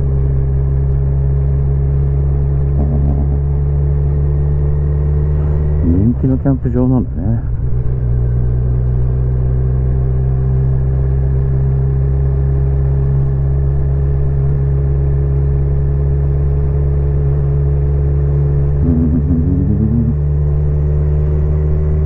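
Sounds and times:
motorcycle engine running: 0:00.0 - 0:22.0
brief wavering tone: 0:02.8 - 0:03.4.

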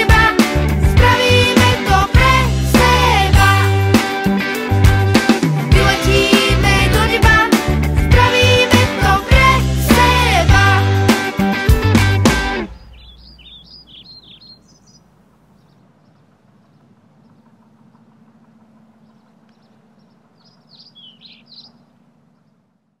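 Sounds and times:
band music: 0:00.0 - 0:13.0
faint bird chirps: 0:12.7 - 0:18.2, 0:18.9 - 0:22.9
low steady outdoor hum: 0:12.7 - 0:23.0.

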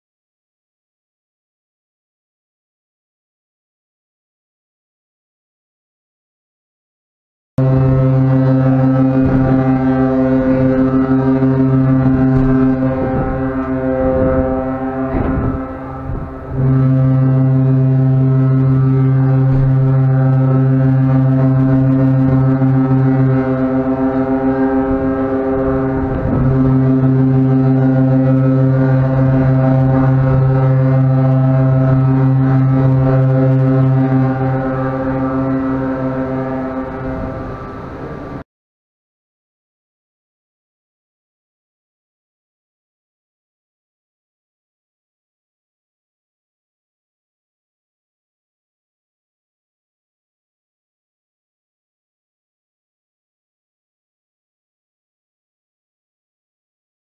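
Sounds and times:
ship horn deep blast: 0:07.6 - 0:38.4.

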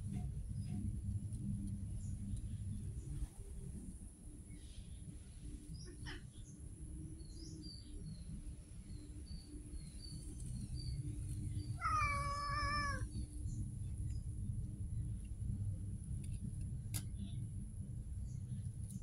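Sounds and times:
low background rumble: 0:00.0 - 0:19.0
cat meowing: 0:11.8 - 0:13.1.

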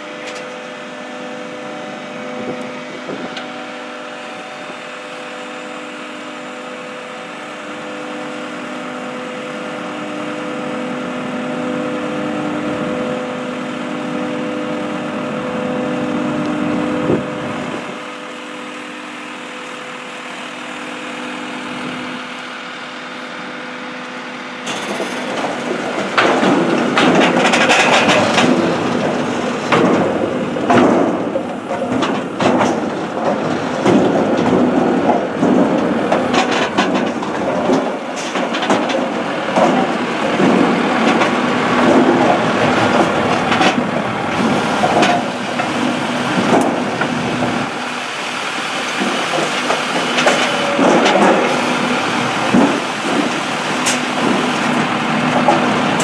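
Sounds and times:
motor and hydraulic hum: 0:00.0 - 0:56.0
wood rattling clatter: 0:24.7 - 0:47.9, 0:48.8 - 0:56.0.

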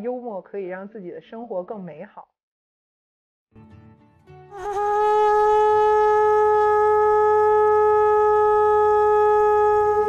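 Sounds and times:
conch shell horn note: 0:04.5 - 0:10.0.

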